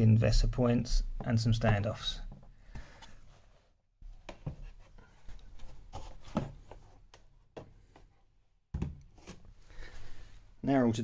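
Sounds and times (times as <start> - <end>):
monitor handling knocks and rubs: 4.0 - 7.0.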